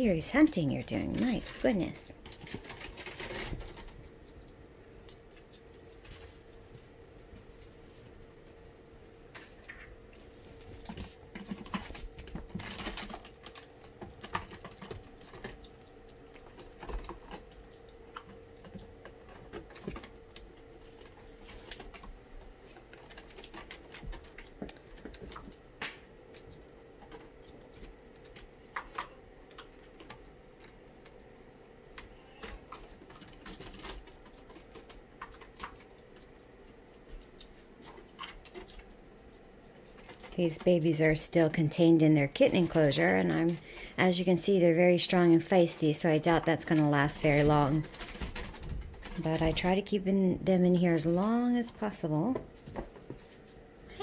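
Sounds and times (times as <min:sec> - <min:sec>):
faint steady hum: 0:00.0 - 0:54.0
kitten claws clicking and scratching: 0:01.0 - 0:05.7, 0:10.8 - 0:25.7, 0:32.3 - 0:36.3, 0:46.3 - 0:49.5.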